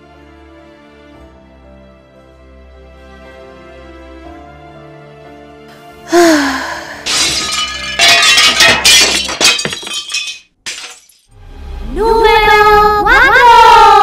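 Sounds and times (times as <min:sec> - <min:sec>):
soft background music: 0:00.0 - 0:07.0
crashing shattering sharp hits: 0:07.0 - 0:11.4.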